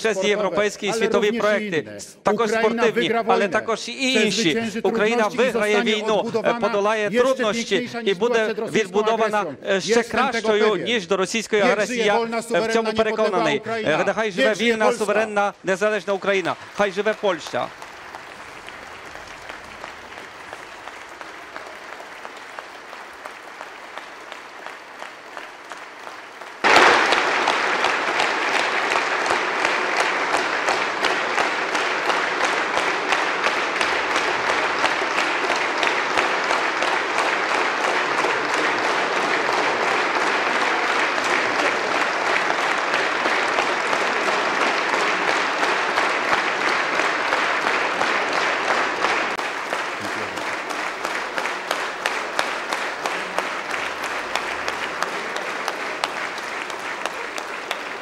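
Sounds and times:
audience applauding: 0.0s - 1.7s, 2.3s - 58.0s.

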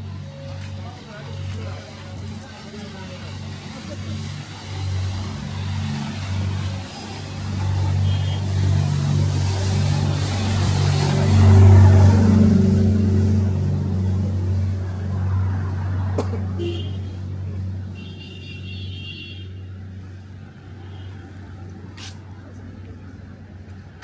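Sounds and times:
vehicle passing by: 0.0s - 18.0s.

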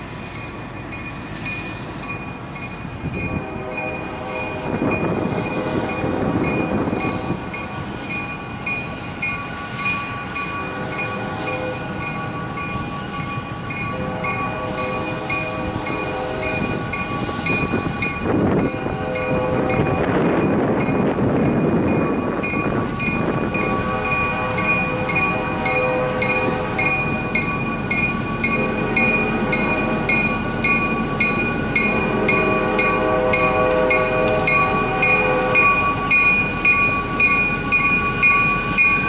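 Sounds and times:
diesel locomotive rolling: 0.0s - 39.0s
train horn chords: 3.2s - 6.4s, 10.6s - 11.9s, 13.8s - 20.3s, 23.4s - 27.3s, 31.7s - 36.2s
bell ringing: 4.4s - 39.0s.

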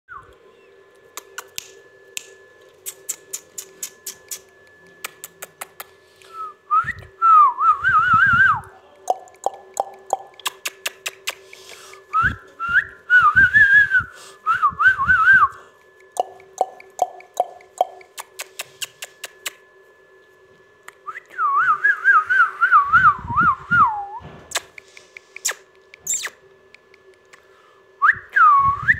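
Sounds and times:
steady hum: 0.1s - 28.9s
sharp light clicks: 1.2s - 5.9s
warbling whistles: 21.1s - 26.4s.

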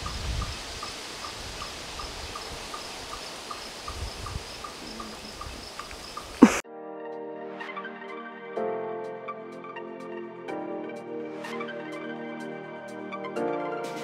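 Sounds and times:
faint even hiss: 0.0s - 6.6s
small creature peeping: 6.3s - 6.6s.

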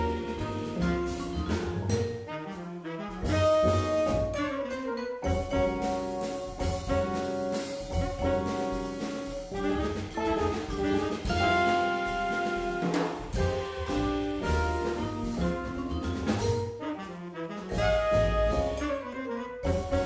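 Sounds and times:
electric piano: 0.0s - 2.3s, 3.3s - 16.8s, 17.7s - 20.0s
upright bass: 0.0s - 2.3s, 3.2s - 4.6s, 5.2s - 16.8s, 17.7s - 20.0s
drum kit: 0.0s - 20.0s
trumpet and saxophone: 0.0s - 20.0s
vibraphone: 3.8s - 12.8s, 13.6s - 16.8s.

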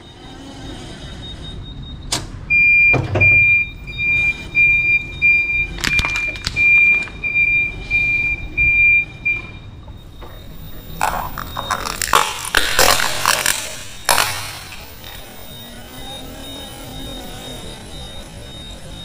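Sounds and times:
forklift warning beeper: 0.0s - 19.0s
plastic cracking under tyre: 5.7s - 7.2s, 11.0s - 15.2s.

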